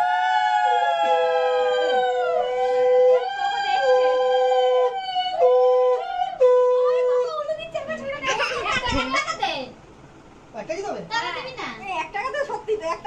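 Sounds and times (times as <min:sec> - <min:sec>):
women ululating: 0:00.0 - 0:06.3.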